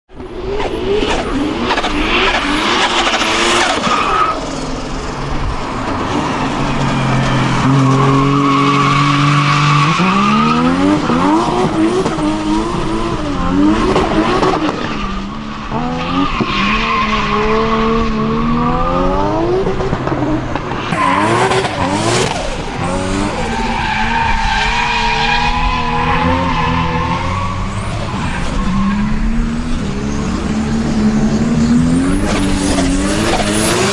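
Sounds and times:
car engine revving hard: 7.6s - 14.9s, 21.0s - 24.2s, 29.3s - 33.9s.

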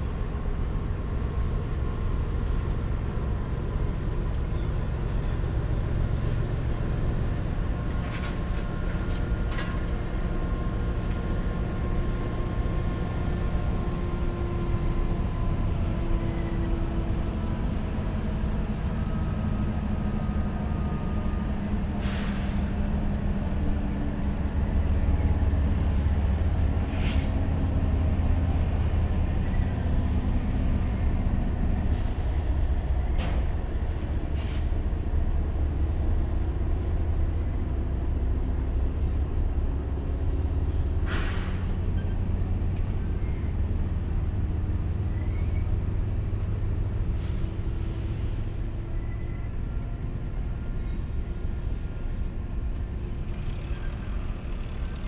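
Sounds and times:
diesel locomotive engines rumbling: 0.0s - 55.0s.

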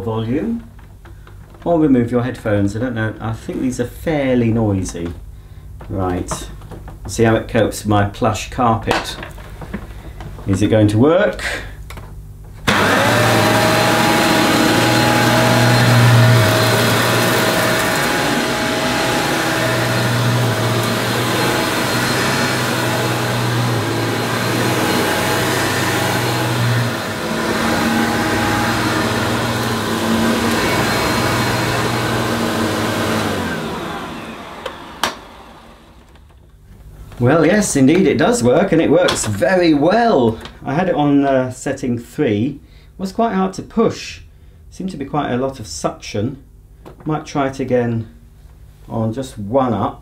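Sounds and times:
vacuum cleaner running: 12.6s - 36.4s
vacuum cleaner switch click: 34.5s - 36.2s.

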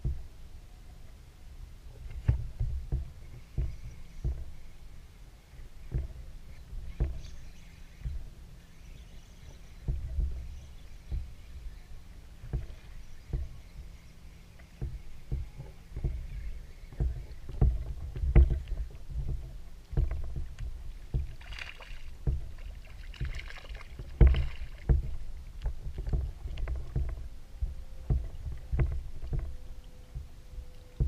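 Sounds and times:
waves slapping against a hull: 0.0s - 0.5s, 1.7s - 31.0s.

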